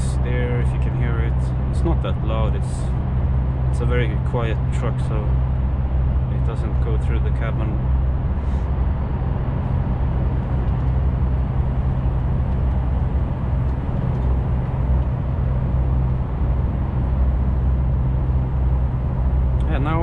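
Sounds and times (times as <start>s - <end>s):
truck engine hum: 0.0s - 20.0s
tyre and road noise: 0.0s - 20.0s.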